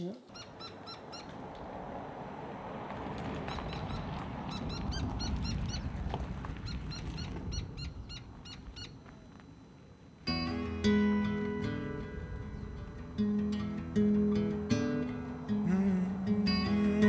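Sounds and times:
bird calling: 0:00.0 - 0:01.9, 0:03.2 - 0:17.0.

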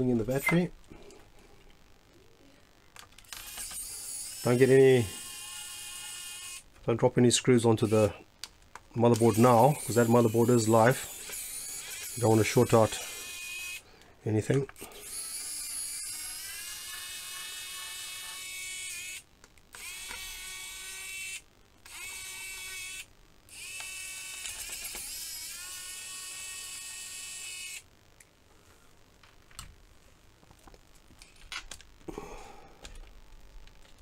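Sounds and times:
electric screwdriver whining: 0:15.0 - 0:27.8.

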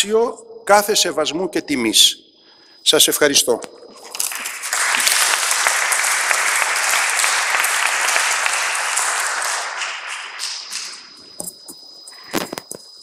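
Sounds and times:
audience applauding: 0:04.1 - 0:11.2.

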